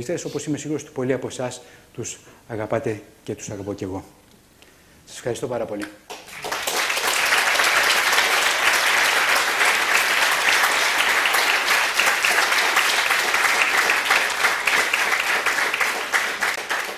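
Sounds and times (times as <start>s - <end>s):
audience applauding: 6.1s - 16.9s.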